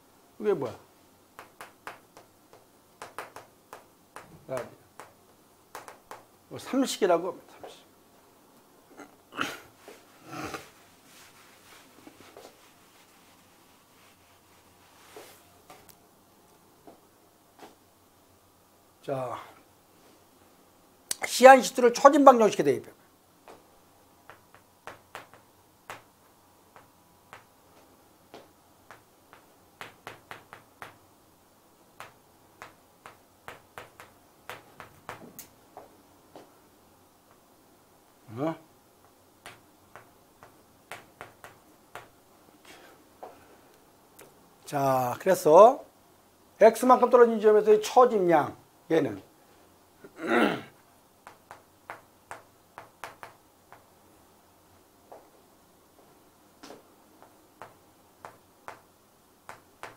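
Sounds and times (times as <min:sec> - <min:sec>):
chalk tapping on chalkboard: 0:01.4 - 0:06.3, 0:24.3 - 0:26.1, 0:26.7 - 0:27.5, 0:28.4 - 0:31.0, 0:32.0 - 0:35.5, 0:39.4 - 0:42.2, 0:51.2 - 0:53.9, 0:57.2 - 0:58.9, 0:59.5 - 0:59.9
breathy noise: 0:08.9 - 0:10.8.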